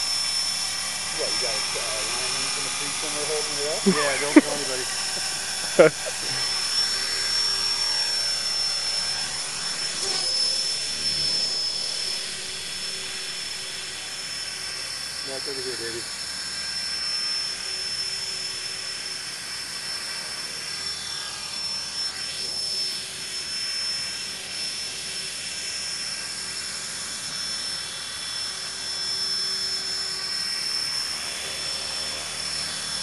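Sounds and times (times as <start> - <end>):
rotor whoosh: 0.0 - 15.9
electric motor whine: 0.0 - 33.0.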